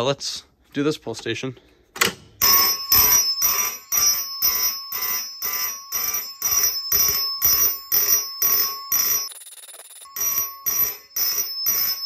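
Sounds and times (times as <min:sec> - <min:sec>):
fire alarm horns pulsing: 0:02.4 - 0:09.4, 0:10.0 - 0:12.0.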